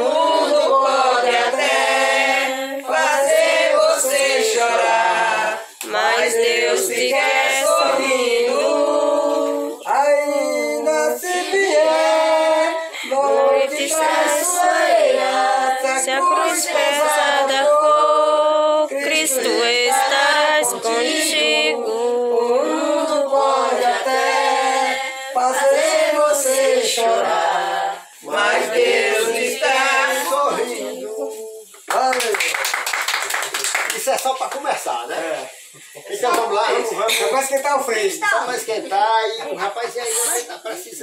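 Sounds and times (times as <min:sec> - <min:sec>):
group singing a hymn: 0:00.0 - 0:31.9.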